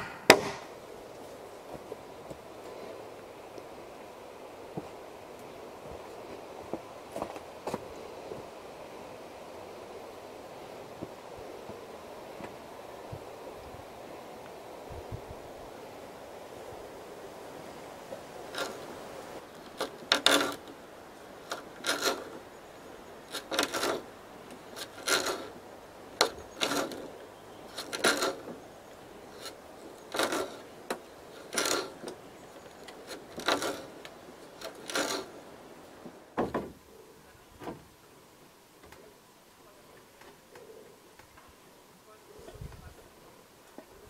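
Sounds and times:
hand tool rasping wooden pole: 0:18.4 - 0:20.8, 0:21.4 - 0:22.4, 0:23.3 - 0:25.6, 0:26.2 - 0:28.6, 0:29.2 - 0:35.4.

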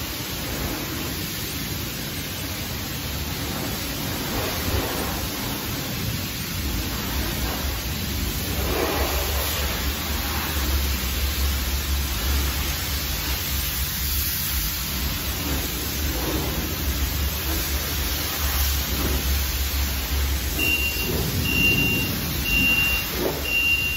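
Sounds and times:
pressure washer spraying water: 0:00.0 - 0:23.9.

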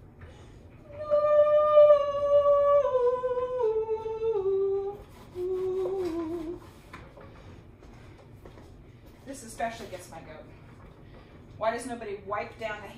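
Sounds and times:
woman humming scales: 0:00.9 - 0:06.7.

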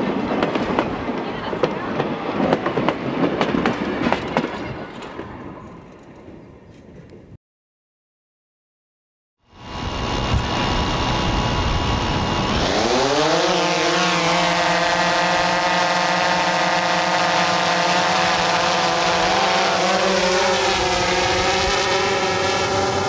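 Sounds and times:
drone propellers buzzing: 0:09.5 - 0:23.0.

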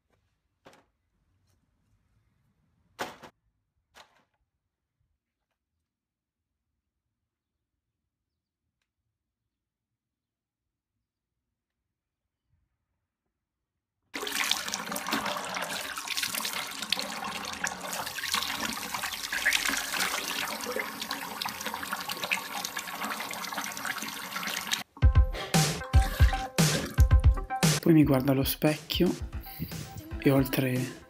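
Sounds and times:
water running: 0:14.2 - 0:24.9, 0:25.6 - 0:28.6.

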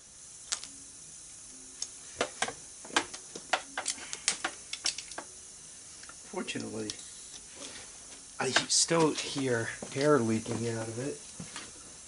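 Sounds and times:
air hissing from tire: 0:00.0 - 0:12.0
metal tool clicks and taps: 0:01.8 - 0:05.3.

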